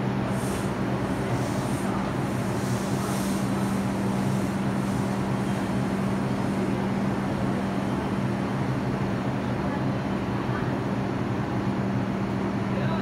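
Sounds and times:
even wash of noise: 0.0s - 10.3s
subway train electrical hum: 0.0s - 13.0s.

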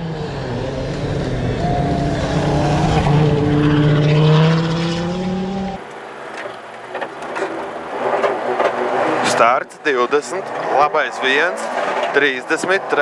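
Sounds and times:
rally car engine at high revs: 0.0s - 5.8s, 7.9s - 9.5s, 10.4s - 13.0s.

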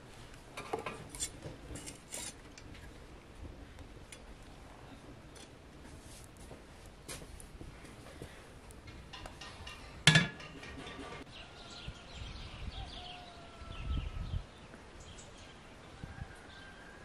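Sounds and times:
metal stove door clanging shut: 9.1s - 11.2s
small birds chirping and whistling: 11.3s - 15.6s.

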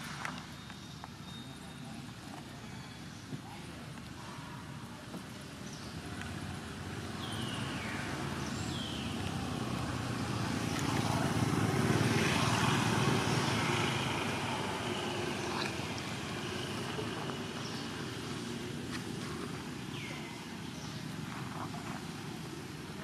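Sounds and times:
vehicle passing: 6.3s - 21.0s.

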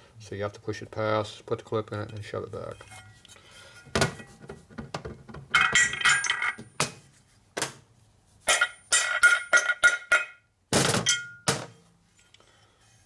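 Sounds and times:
metal parts clinking on workbench: 5.6s - 6.7s, 8.5s - 10.4s.

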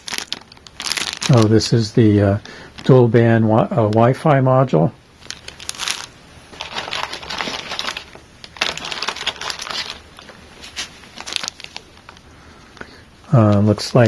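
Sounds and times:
plastic bags crinkling: 0.0s - 1.8s, 5.2s - 12.3s.

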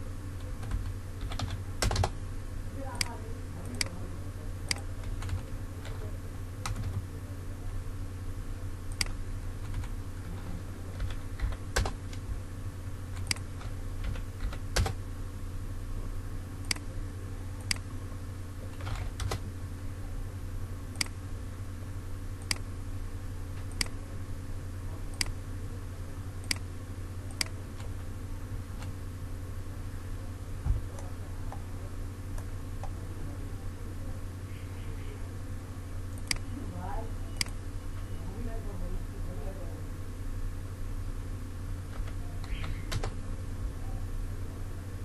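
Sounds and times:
low electrical hum: 0.0s - 45.0s
keyboard and mouse clicks: 13.2s - 15.0s, 23.6s - 24.0s.

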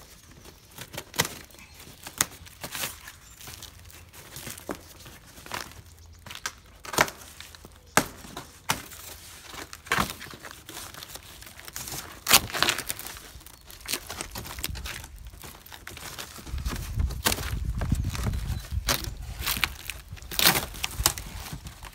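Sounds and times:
cardboard crinkling: 0.0s - 21.9s
cardboard ripping: 6.8s - 21.9s.

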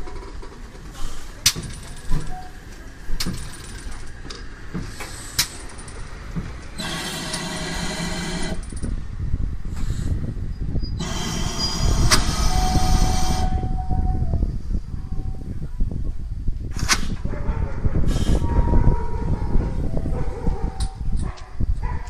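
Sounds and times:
metallic clanks and knocks: 0.0s - 7.8s
steam hiss: 11.0s - 13.7s.

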